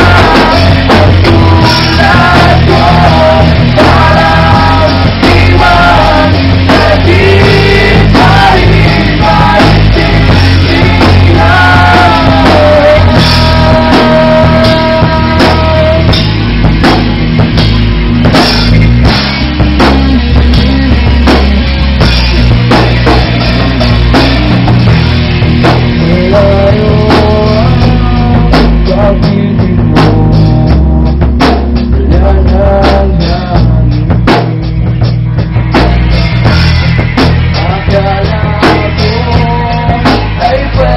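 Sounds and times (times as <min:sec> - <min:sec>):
man singing: 0:00.0 - 0:16.3, 0:25.8 - 0:36.0, 0:37.5 - 0:40.9
rock band playing live: 0:00.0 - 0:40.9.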